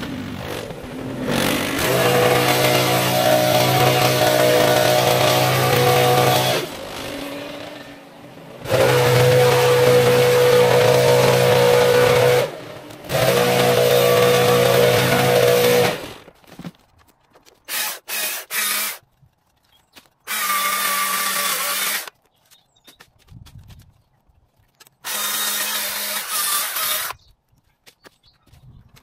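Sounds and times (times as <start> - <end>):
chainsaw cutting hedge: 0.0 - 16.4, 17.6 - 19.0, 20.3 - 22.1, 25.0 - 27.2.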